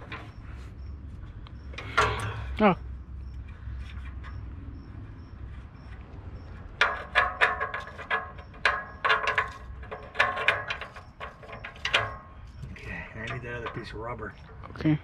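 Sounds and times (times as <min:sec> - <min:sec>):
metal parts clanking and rattling: 0:00.0 - 0:00.7, 0:01.6 - 0:02.6, 0:05.9 - 0:14.7.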